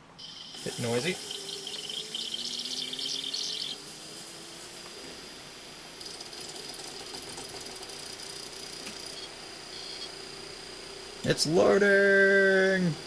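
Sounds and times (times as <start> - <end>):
disc player motor whine: 0.0 - 13.0
fast mechanical rattle: 0.2 - 9.3.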